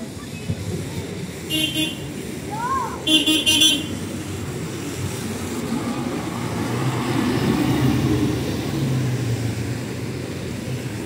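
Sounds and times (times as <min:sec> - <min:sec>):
road traffic: 0:00.0 - 0:11.0
vehicle engine passing: 0:03.2 - 0:11.0.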